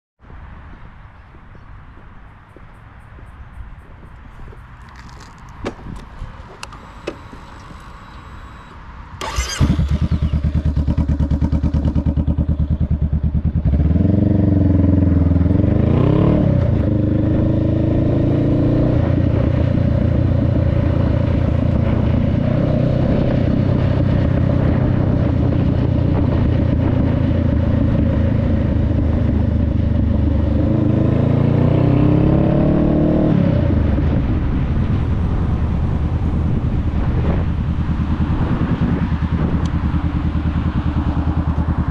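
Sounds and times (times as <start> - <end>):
motorcycle engine revving: 6.6 - 41.9.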